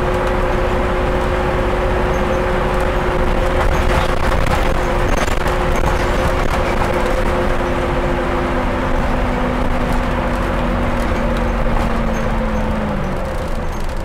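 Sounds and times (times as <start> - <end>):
bus engine and drivetrain whine: 0.0 - 14.0.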